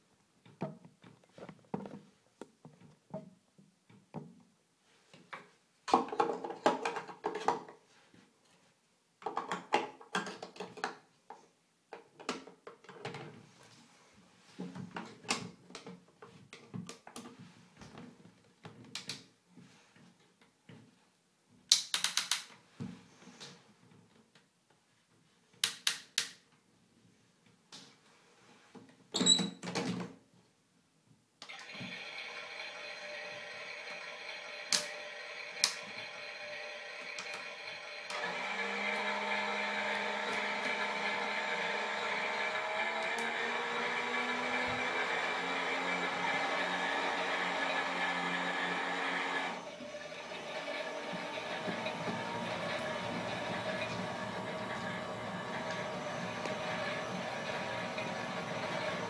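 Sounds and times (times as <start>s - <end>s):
toy washing machine whirring: 31.4s - 59.0s
toy washing machines clicking: 31.4s - 59.0s.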